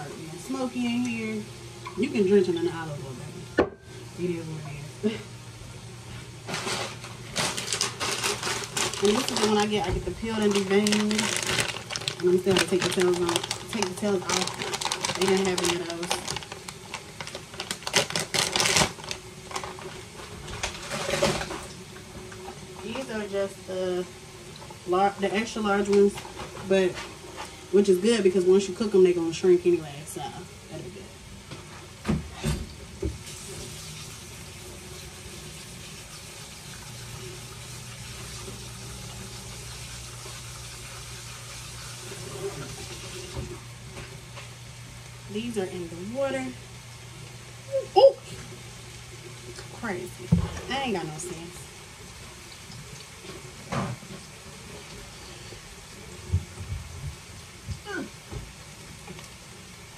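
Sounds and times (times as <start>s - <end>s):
low steady hum: 0.0s - 59.9s
shrimp frying in oil: 6.4s - 30.7s, 32.8s - 47.7s, 48.3s - 59.9s
kitchen tap running into sink: 32.0s - 43.6s.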